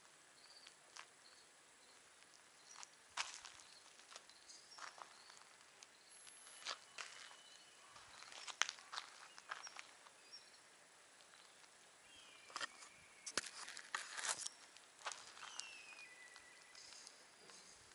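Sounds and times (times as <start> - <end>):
faint high chirps: 0.4 - 13.7, 14.4 - 17.9
soft clicks and scuffs: 12.5 - 17.9.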